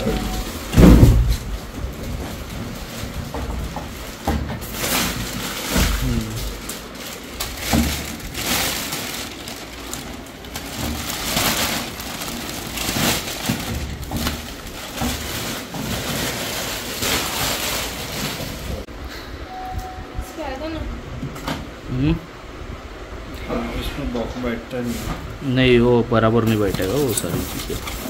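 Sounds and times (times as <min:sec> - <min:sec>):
plastic packaging crinkling: 0:00.0 - 0:18.9, 0:26.5 - 0:28.0.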